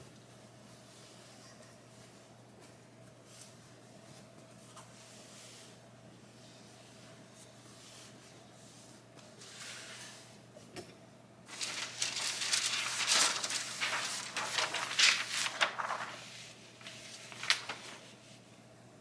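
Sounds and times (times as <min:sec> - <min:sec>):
parchment paper rustling: 0:11.5 - 0:18.4.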